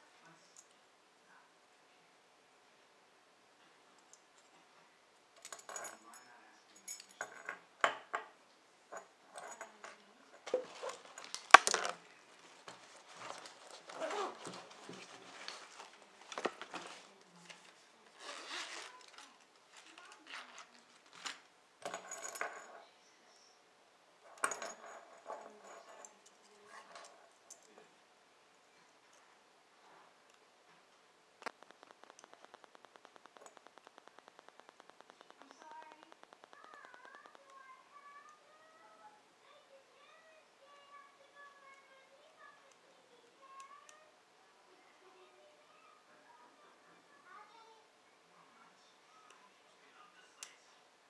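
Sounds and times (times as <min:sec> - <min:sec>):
metal tools clinking on wood: 0:08.9 - 0:11.9, 0:24.3 - 0:27.7.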